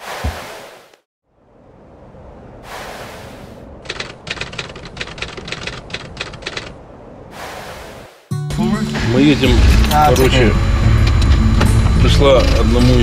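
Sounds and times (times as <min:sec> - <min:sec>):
rapid typewriter-like clicks: 0:03.8 - 0:06.8.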